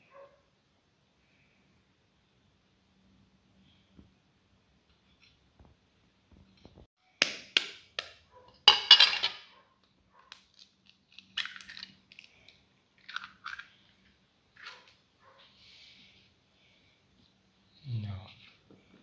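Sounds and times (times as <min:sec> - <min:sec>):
eggshell cracking: 0:10.3 - 0:15.0.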